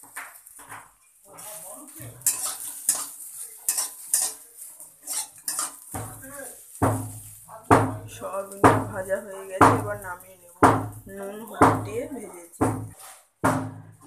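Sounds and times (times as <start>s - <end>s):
light sizzle: 0.0s - 14.0s
metal spatula scraping a steel pan: 1.4s - 7.4s, 12.7s - 13.4s.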